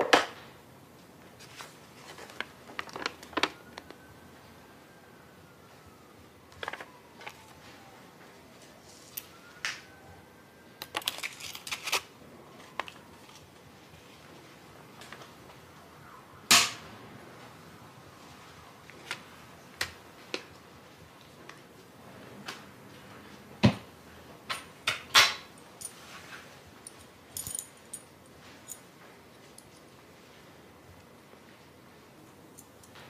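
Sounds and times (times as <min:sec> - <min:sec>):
paper being folded and creased: 0:01.4 - 0:03.6.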